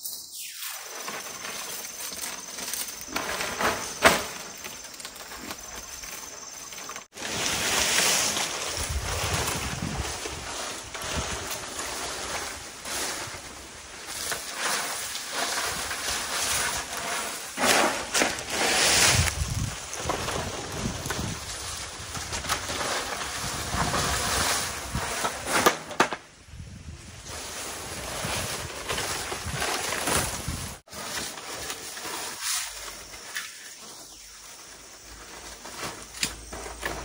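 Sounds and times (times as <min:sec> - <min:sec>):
dry thatch rustling: 0:00.3 - 0:25.9, 0:26.8 - 0:37.0.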